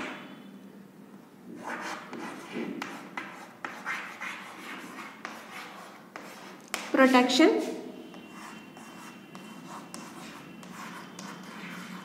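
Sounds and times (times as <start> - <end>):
chalk scratching on blackboard: 1.6 - 12.0
chalk tapping: 1.6 - 12.0.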